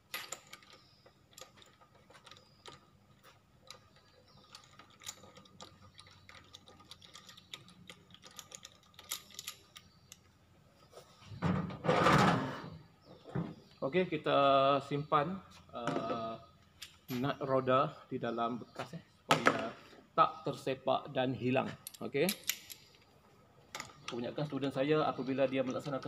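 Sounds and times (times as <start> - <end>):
metallic clicks of wheel nuts: 0.0 - 10.4, 21.8 - 23.1, 23.7 - 26.0.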